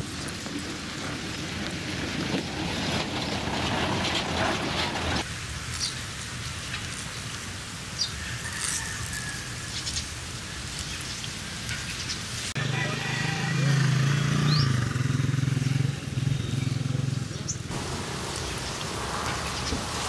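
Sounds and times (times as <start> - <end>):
truck engine rumbling: 0.0 - 5.3, 13.5 - 20.0
dense rustling gritty noise: 0.0 - 7.8, 17.7 - 20.0
bird chirps: 14.4 - 14.8.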